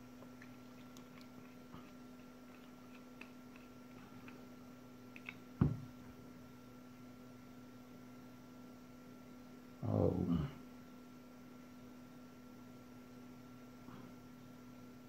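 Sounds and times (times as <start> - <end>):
faint hum: 0.0 - 15.0
screwdriver thump on rubber mat: 5.6 - 5.9.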